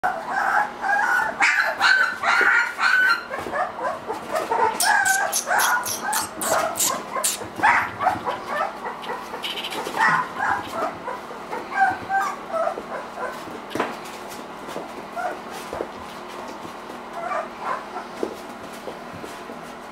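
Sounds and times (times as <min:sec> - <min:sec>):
puppies whining and yipping: 0:00.0 - 0:13.5, 0:15.1 - 0:15.8, 0:17.1 - 0:18.2.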